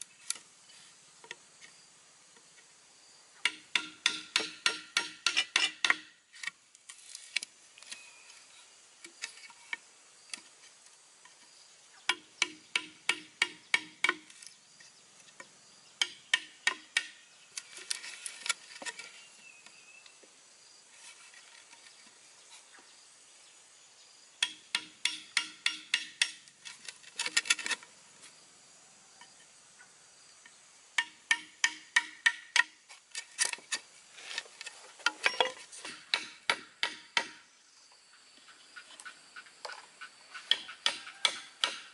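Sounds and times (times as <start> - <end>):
mallet tapping chisel into bamboo: 3.4 - 6.2, 12.1 - 14.3, 16.0 - 17.2, 24.4 - 26.4, 31.0 - 32.8, 35.2 - 37.4, 40.5 - 41.9.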